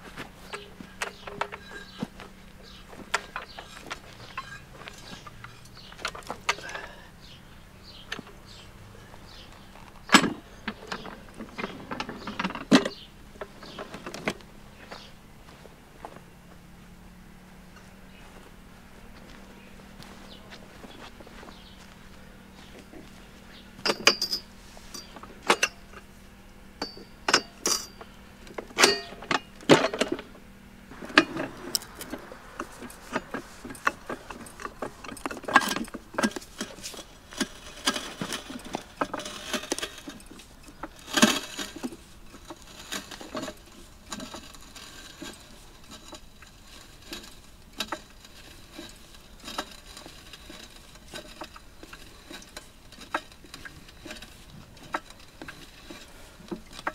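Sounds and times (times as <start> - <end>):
floor jack pumping clicks: 9.2 - 15.1, 30.9 - 56.9
metallic knocks: 23.7 - 26.0.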